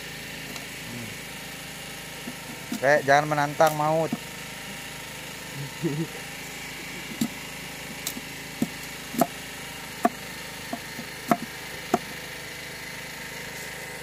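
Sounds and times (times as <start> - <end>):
knife cracking sugarcane stalks: 7.0 - 9.4, 10.0 - 12.1.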